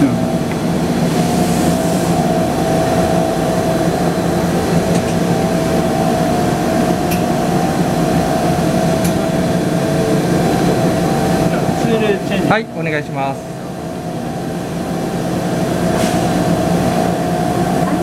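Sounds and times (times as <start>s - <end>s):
machine mechanical hum: 0.0s - 18.0s
machine whine: 0.0s - 18.0s.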